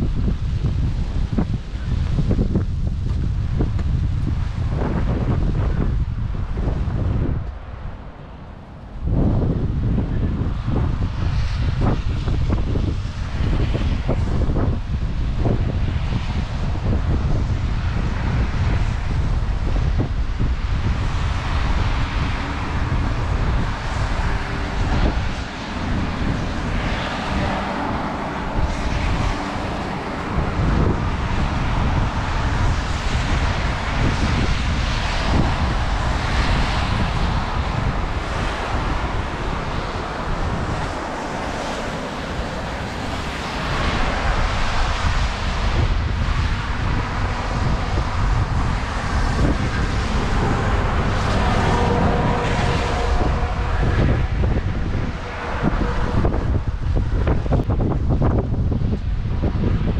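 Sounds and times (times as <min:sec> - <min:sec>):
traffic on wet roads: 0:00.0 - 0:59.9
wind buffeting microphone: 0:00.0 - 0:59.9
rain: 0:09.8 - 0:59.9.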